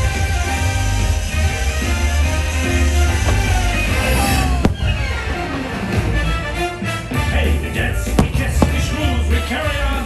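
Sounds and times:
firework bangs: 0.0s - 5.6s, 7.8s - 10.0s
soundtrack music: 0.0s - 10.0s.

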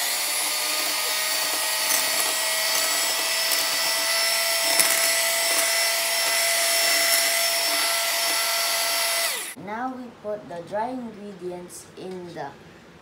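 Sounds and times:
electric hand mixer whining: 0.0s - 9.6s.

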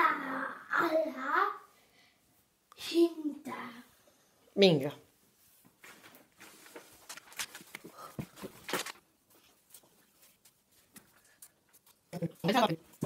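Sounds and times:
tape and paper crackling: 5.9s - 12.5s.

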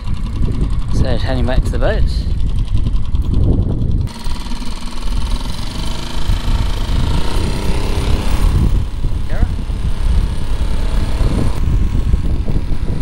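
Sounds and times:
high motor whine: 0.0s - 13.0s
outboard motor running: 0.0s - 13.0s.

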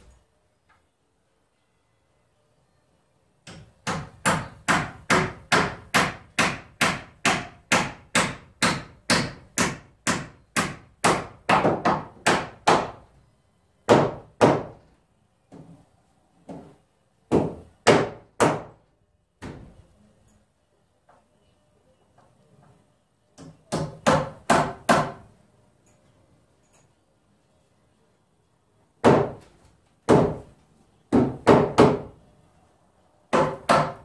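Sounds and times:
hammer striking nails into wood: 3.4s - 13.0s, 13.9s - 14.8s, 17.3s - 18.8s, 23.4s - 25.3s, 29.0s - 29.5s, 30.1s - 30.5s, 31.1s - 32.2s, 33.3s - 34.0s.

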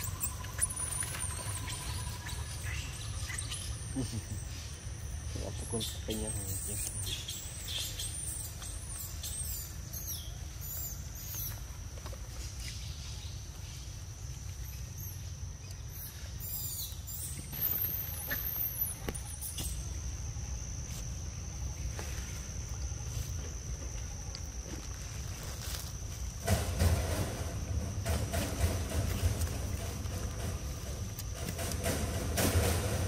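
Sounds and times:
high warbling bird call: 0.0s - 4.8s
steady high whine: 0.0s - 12.7s
small birds chirping: 0.0s - 23.2s.

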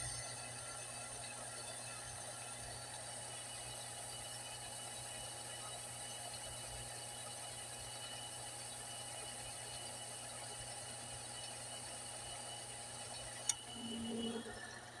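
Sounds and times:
metal lathe humming: 13.3s - 15.0s.

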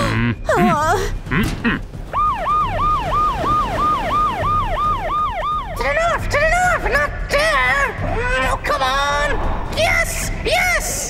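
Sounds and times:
boat siren wailing: 2.0s - 6.8s.

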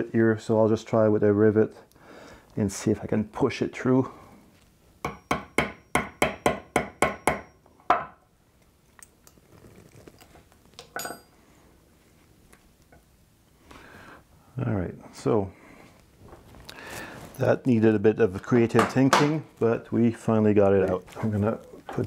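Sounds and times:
hammer tapping metal: 5.0s - 8.2s.

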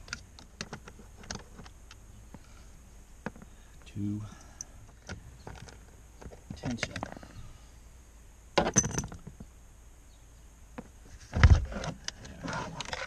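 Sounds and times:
metal clinks and rattles: 8.6s - 9.3s.

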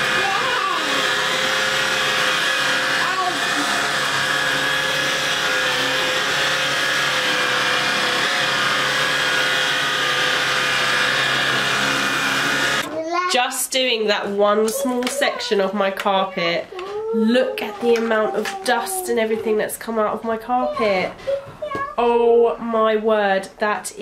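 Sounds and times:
stick vacuum motor whine: 0.0s - 12.9s.

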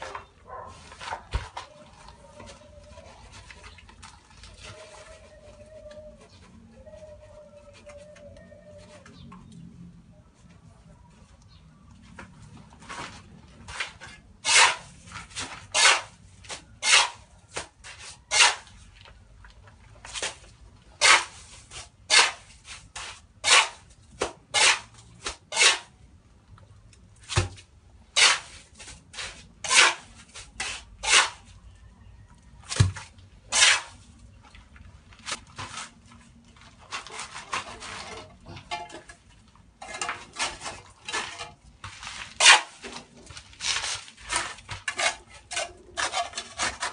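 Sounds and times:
trowel scraping mortar: 12.9s - 18.8s, 21.0s - 23.9s, 24.5s - 26.0s, 28.1s - 31.5s, 32.8s - 34.1s, 36.8s - 39.2s, 39.8s - 46.9s.

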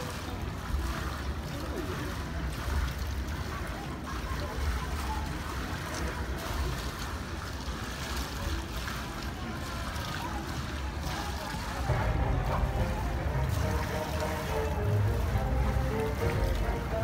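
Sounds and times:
faint distant voices: 0.0s - 17.0s.

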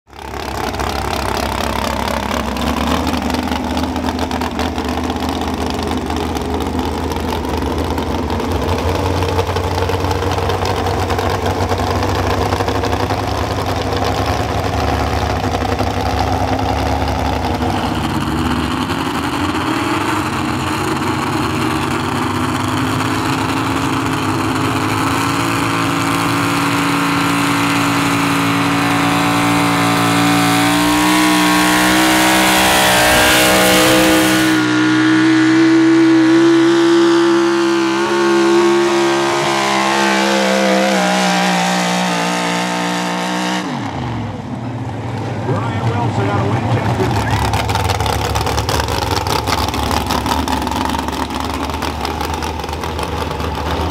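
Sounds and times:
truck engine idling and revving: 0.0s - 53.9s.

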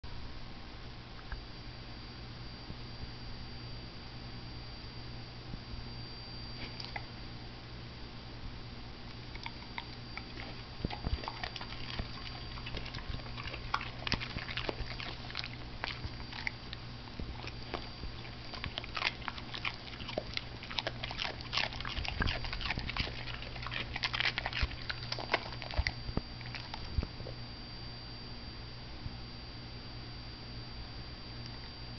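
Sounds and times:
dog chewing broccoli crunches: 6.6s - 7.1s, 9.0s - 27.1s.

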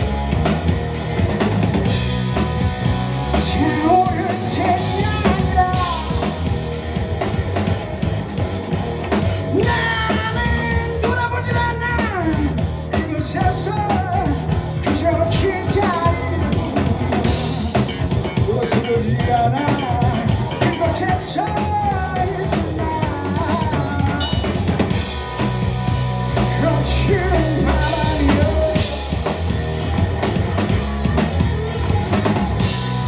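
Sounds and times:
drum kit: 0.0s - 33.0s
electric bass: 0.0s - 33.0s
electric guitar: 0.0s - 33.0s
person singing: 3.3s - 6.4s, 9.5s - 17.0s, 18.3s - 24.6s, 26.4s - 29.4s.

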